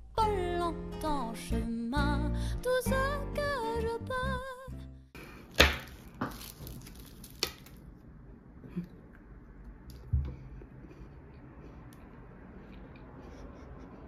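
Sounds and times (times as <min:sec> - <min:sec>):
faint chewing: 0:10.0 - 0:14.0.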